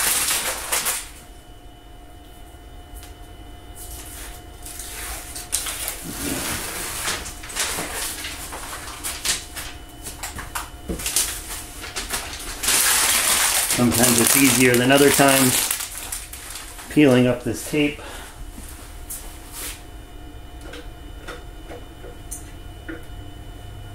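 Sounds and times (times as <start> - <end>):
tape being peeled off: 11.0 - 16.9.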